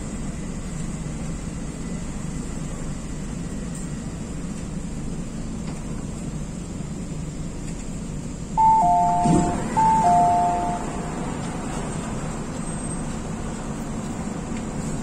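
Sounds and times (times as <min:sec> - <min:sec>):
train running noise: 0:00.0 - 0:15.0
falling two-note chime: 0:08.6 - 0:11.2.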